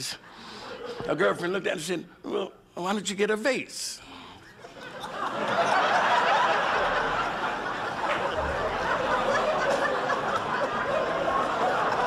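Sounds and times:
audience laughing: 0:04.6 - 0:12.0.

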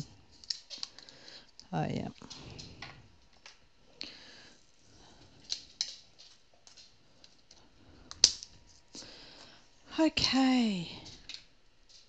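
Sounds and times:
small objects clicking and tapping: 0:00.3 - 0:03.6, 0:05.4 - 0:09.1.

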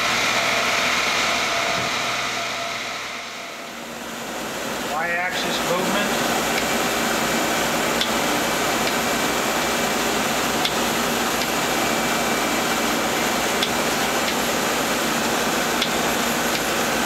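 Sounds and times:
lathe whirring: 0:00.0 - 0:17.0.

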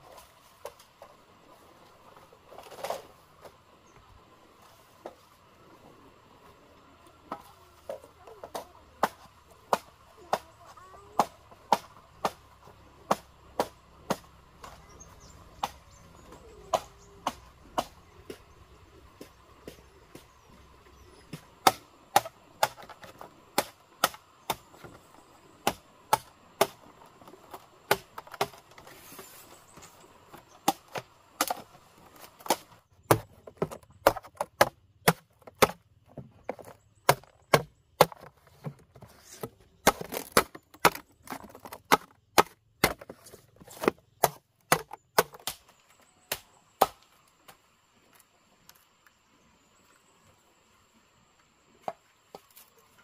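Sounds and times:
machete chopping bamboo: 0:08.5 - 0:14.8, 0:15.6 - 0:18.5, 0:21.3 - 0:25.0, 0:25.6 - 0:29.0, 0:30.6 - 0:35.8, 0:36.5 - 0:47.1.

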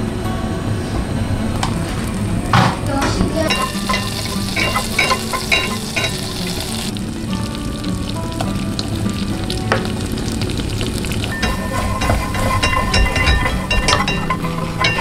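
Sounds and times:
butter sizzling in a saucepan: 0:03.4 - 0:15.0
whisk clinking against pan: 0:03.5 - 0:06.9, 0:11.3 - 0:15.0.

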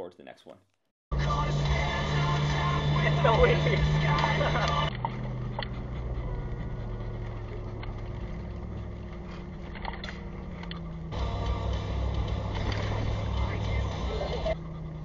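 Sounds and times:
truck engine droning: 0:01.1 - 0:15.0
tyres droning: 0:01.1 - 0:15.0
faint clicks: 0:04.2 - 0:11.0.

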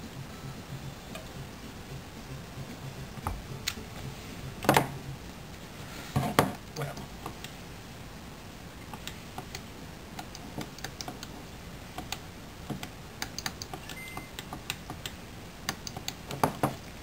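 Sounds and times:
faint low hum: 0:00.0 - 0:17.0
game controller buttons clicking: 0:10.2 - 0:11.3, 0:12.8 - 0:16.2.

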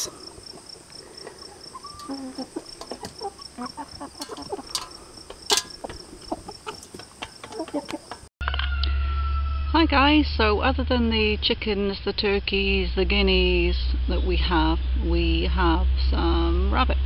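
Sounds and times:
chickens clucking: 0:00.0 - 0:08.3
chickens pecking at metal bowls: 0:00.0 - 0:08.3
cricket chirping: 0:00.0 - 0:08.3.

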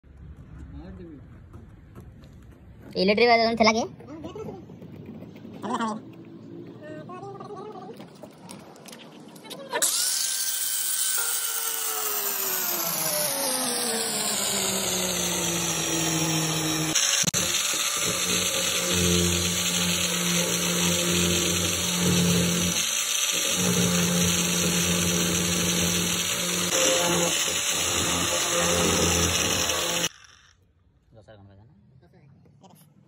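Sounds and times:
angle grinder cutting plastic: 0:09.5 - 0:30.7.

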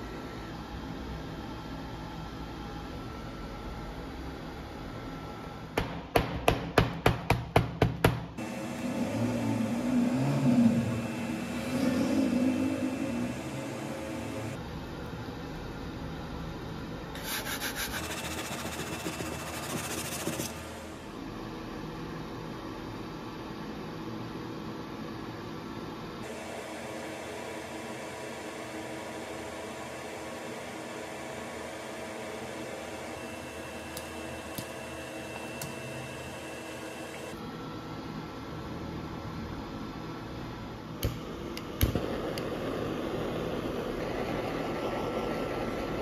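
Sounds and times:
fan-like hum: 0:00.0 - 0:46.0
sandpaper scratching on plastic: 0:17.2 - 0:20.6.

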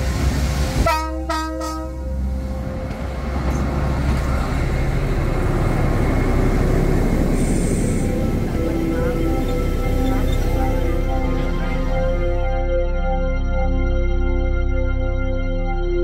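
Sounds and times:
locomotive engine running: 0:00.0 - 0:12.9
locomotive horn: 0:00.8 - 0:12.6.

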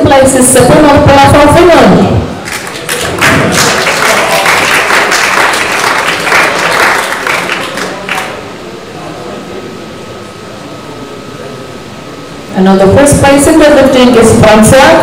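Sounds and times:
audience applauding: 0:02.4 - 0:08.4.

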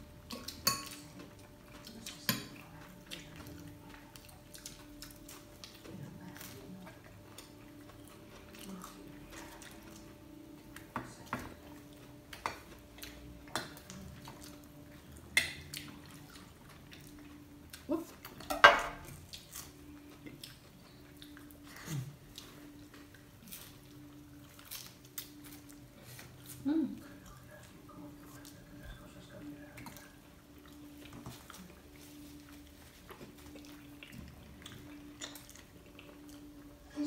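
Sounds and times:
faint steady hum: 0:00.0 - 0:37.0
cutlery clinking on a plate: 0:18.4 - 0:19.0.

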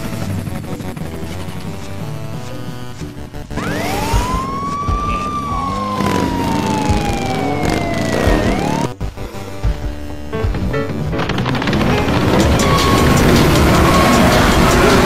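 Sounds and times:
background music: 0:00.0 - 0:15.0
siren wailing: 0:03.5 - 0:09.0, 0:12.2 - 0:15.0
sound effects: 0:03.5 - 0:09.0, 0:11.5 - 0:15.0.

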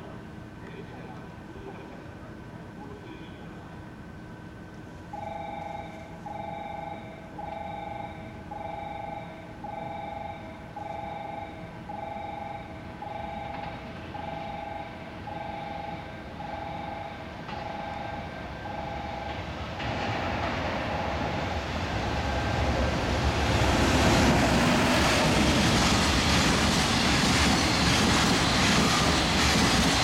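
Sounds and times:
railway warning beep: 0:05.1 - 0:19.6.

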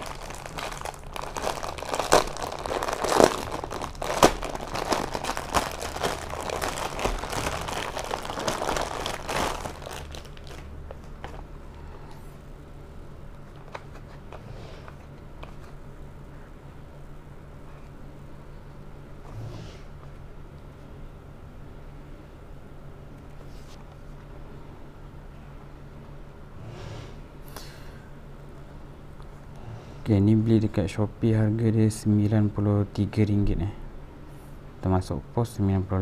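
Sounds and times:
plastic bag crinkling: 0:00.0 - 0:11.5
low steady hum: 0:00.0 - 0:36.0.

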